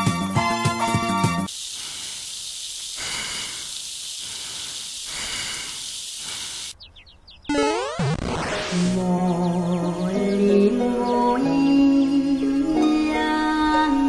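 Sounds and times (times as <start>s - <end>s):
music: 0.0s - 1.5s, 8.9s - 14.0s
airy hissing: 1.2s - 6.8s.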